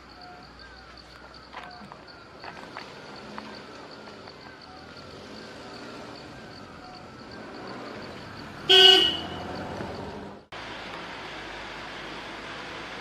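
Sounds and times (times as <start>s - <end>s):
loud pitched honk: 8.7s - 9.4s.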